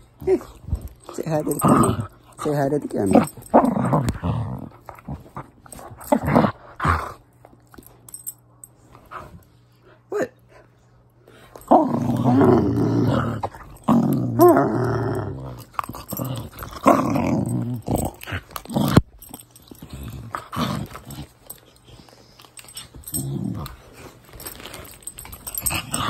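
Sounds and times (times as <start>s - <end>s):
dog growling in play: 0.2s - 7.2s, 11.6s - 21.9s, 22.6s - 26.0s.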